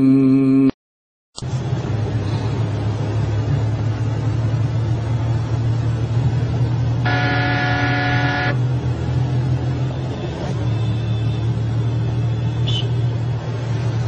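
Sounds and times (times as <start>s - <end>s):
pitched honk: 7.0s - 8.6s.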